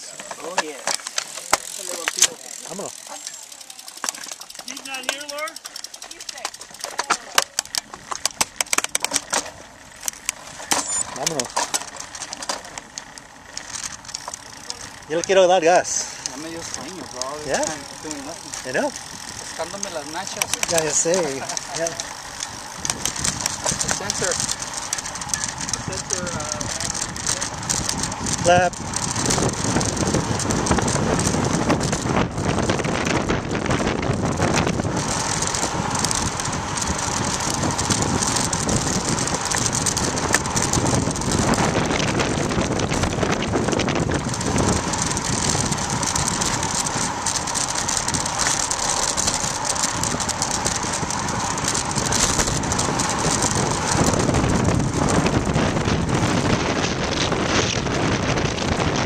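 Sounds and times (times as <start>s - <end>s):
bicycle freewheel hub ticking: 0.0s - 59.0s
bike clicks and rattles: 0.0s - 59.0s
wind rushing on microphone: 15.0s - 59.0s.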